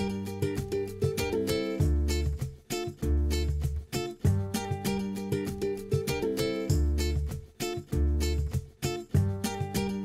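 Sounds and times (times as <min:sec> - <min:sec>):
background music with bass notes: 0:00.0 - 0:10.0.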